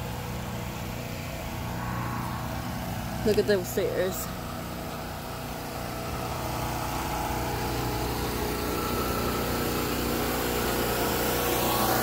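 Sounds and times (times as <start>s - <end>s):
motor engine running: 0.0s - 12.0s.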